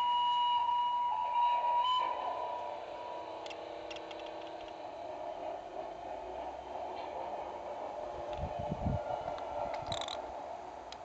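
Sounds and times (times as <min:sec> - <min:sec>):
model locomotive horn tone: 0:00.0 - 0:04.8
electric locomotive running hum: 0:00.0 - 0:11.0
faint clicks: 0:03.4 - 0:04.8.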